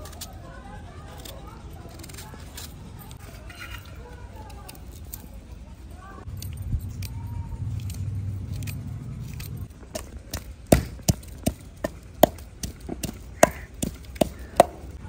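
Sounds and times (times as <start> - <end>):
low steady rumble: 5.5 - 13.4
wooden pestle pounding in mortar: 9.9 - 15.0.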